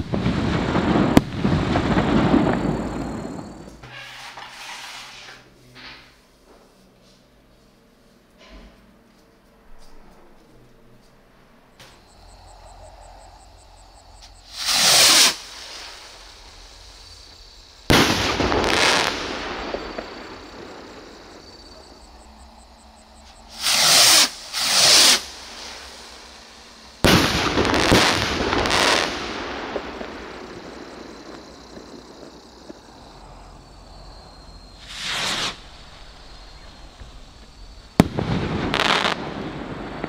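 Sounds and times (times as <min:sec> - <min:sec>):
firework bang: 0:00.0 - 0:04.8, 0:17.8 - 0:22.0, 0:27.0 - 0:32.8, 0:34.8 - 0:37.2, 0:37.9 - 0:40.0
rocket whooshing up: 0:14.5 - 0:16.9, 0:23.5 - 0:26.4, 0:34.8 - 0:36.7.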